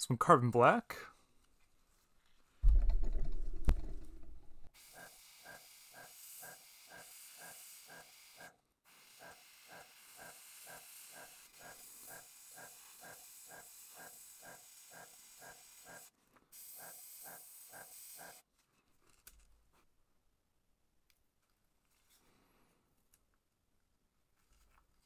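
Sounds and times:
airbrush hissing: 0:09.2 - 0:18.4.

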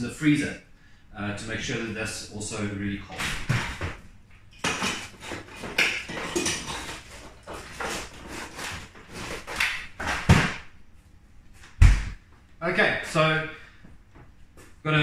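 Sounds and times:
items clattering in freezer drawer: 0:04.6 - 0:10.5.

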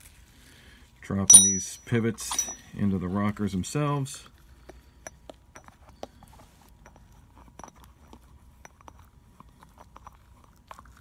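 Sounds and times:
metal parts clicking and tapping: 0:01.3 - 0:02.6
low steady hum: 0:01.3 - 0:02.7.

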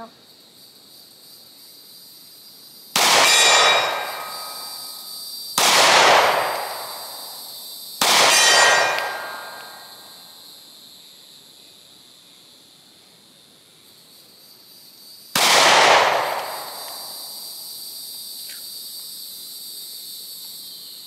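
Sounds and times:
pistol shots: 0:03.0 - 0:04.7, 0:05.6 - 0:07.3, 0:08.0 - 0:09.8, 0:15.4 - 0:17.2
steel target ringing: 0:08.3 - 0:09.8.

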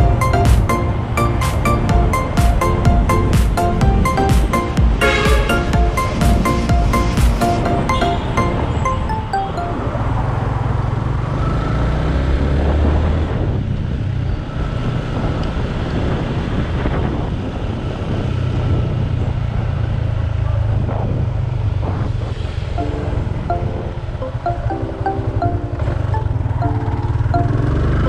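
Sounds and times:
road noise: 0:00.0 - 0:28.0
motorcycle engine running: 0:26.2 - 0:28.0.

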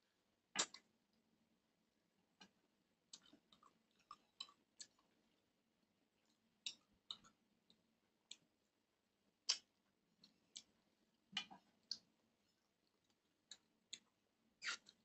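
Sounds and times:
wet mouth clicks and smacks chewing: 0:00.6 - 0:00.8, 0:03.1 - 0:05.1, 0:09.4 - 0:10.8, 0:11.4 - 0:12.1, 0:12.8 - 0:15.0.

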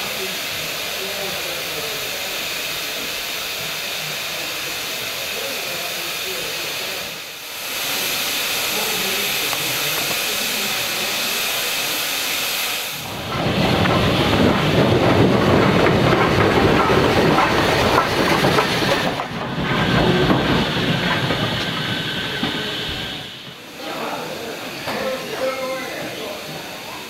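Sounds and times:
steam hissing: 0:00.0 - 0:27.0
steam locomotives working: 0:00.0 - 0:27.0.

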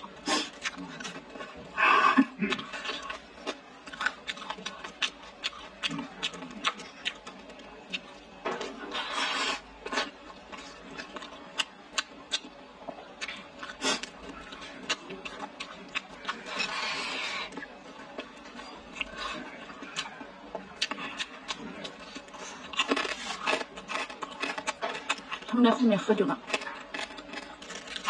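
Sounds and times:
chewing and lip smacks: 0:02.5 - 0:08.2, 0:09.8 - 0:25.5.

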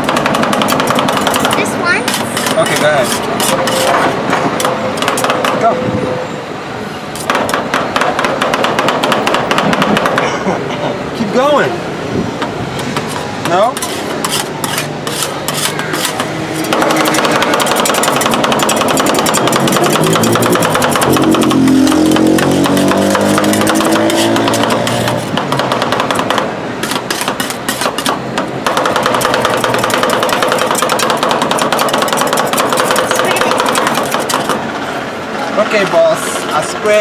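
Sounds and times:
metal spatulas tapping and scraping: 0:00.0 - 0:05.6, 0:12.8 - 0:34.6
engine hum: 0:09.3 - 0:36.8.

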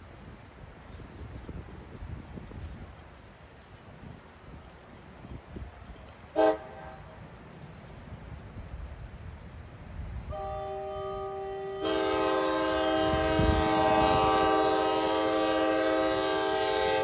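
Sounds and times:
locomotive air horn blast: 0:06.3 - 0:07.1, 0:10.3 - 0:17.0.

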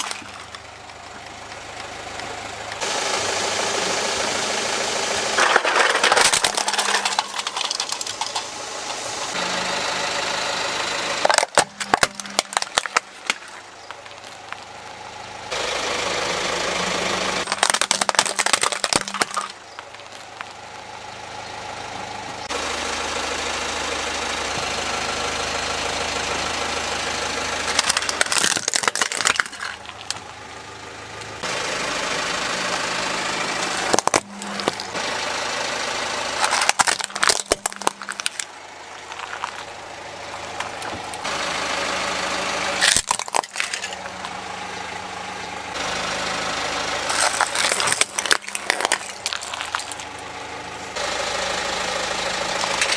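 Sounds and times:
plastic toys crushed by tyre: 0:00.0 - 0:01.8, 0:05.3 - 0:09.8, 0:11.1 - 0:14.8, 0:16.8 - 0:20.6, 0:27.6 - 0:30.4, 0:33.5 - 0:35.2, 0:36.2 - 0:41.3, 0:42.8 - 0:44.4, 0:47.0 - 0:51.0, 0:52.4 - 0:52.9
car engine idling: 0:00.0 - 0:52.9.

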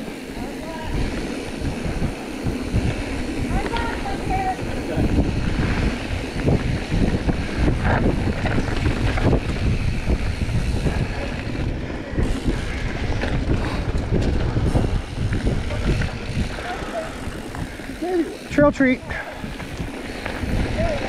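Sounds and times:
tyres rumbling on dirt: 0:00.0 - 0:21.0
wind buffeting microphone: 0:00.0 - 0:21.0
bike knocks and rattles: 0:05.2 - 0:17.7.

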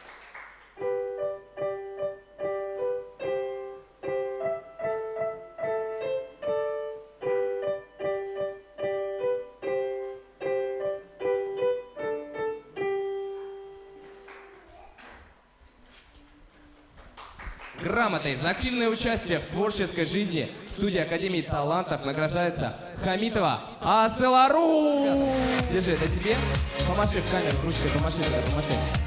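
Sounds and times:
piano tune: 0:00.0 - 0:14.8, 0:25.1 - 0:29.0.

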